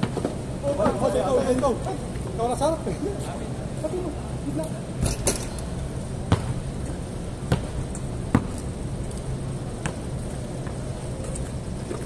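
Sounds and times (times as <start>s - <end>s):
steady low hum: 0.0s - 12.0s
basketball bouncing on concrete: 6.2s - 6.6s, 7.4s - 8.6s.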